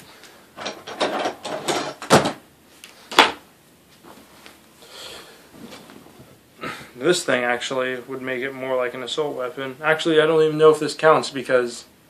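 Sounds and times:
drawer knocking: 0.6s - 2.4s.

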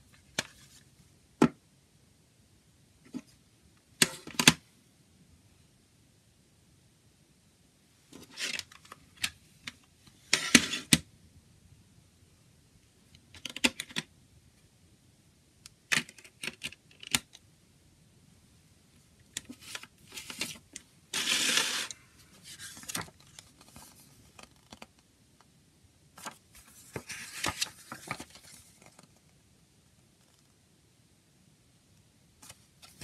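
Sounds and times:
paper booklet rustling: 19.4s - 25.0s, 26.2s - 29.3s, 32.4s - 33.0s.

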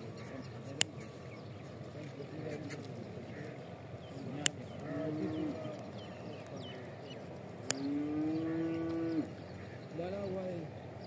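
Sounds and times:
sharp clicks: 0.8s - 1.0s, 4.4s - 4.9s, 7.6s - 7.9s
low drawn-out animal calls: 2.5s - 10.8s.

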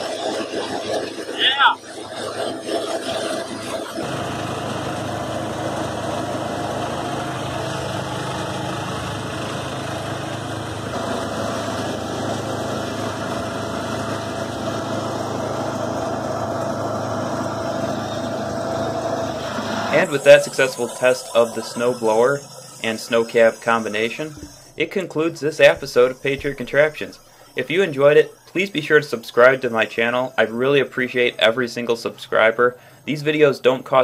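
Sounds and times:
lawn tractor engine running: 2.0s - 34.0s
snowblower throwing snow: 2.4s - 27.2s.

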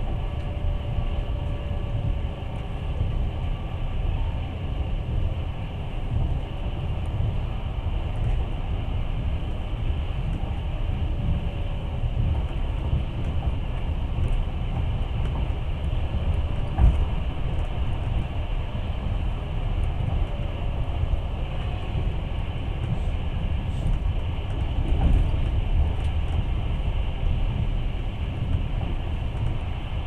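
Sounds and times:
train wheels rumbling on rails: 0.0s - 30.0s
train knock: 10.3s - 18.4s.

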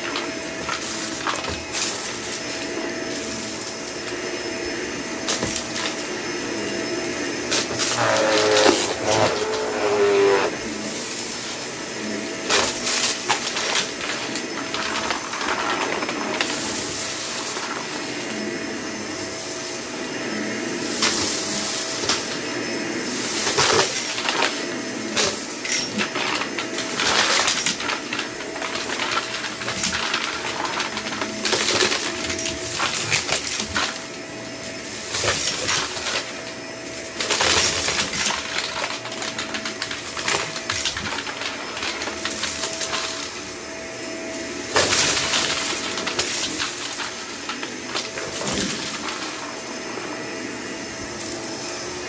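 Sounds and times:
vacuum cleaner whine: 0.0s - 52.0s
confetti rattling in vacuum: 25.3s - 43.6s, 44.4s - 49.6s.

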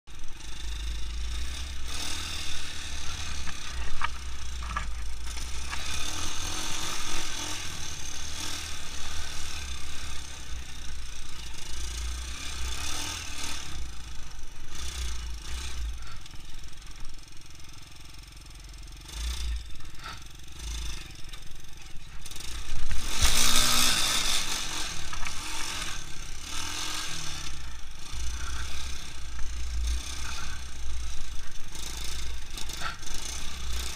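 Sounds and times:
quad engine running: 0.1s - 33.9s.

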